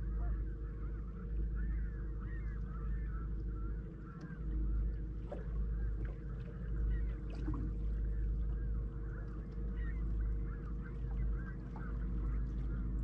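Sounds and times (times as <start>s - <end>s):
boat motor humming: 0.0s - 13.0s
flock of birds calling: 9.0s - 12.8s.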